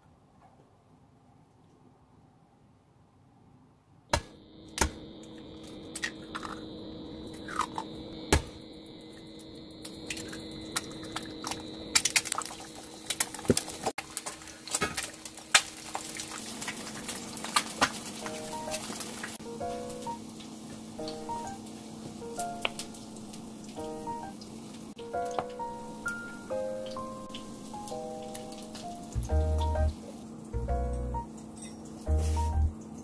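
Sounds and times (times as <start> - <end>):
egg cracking: 4.1 - 6.7, 9.8 - 19.4
egg sizzling in oil: 4.8 - 33.0.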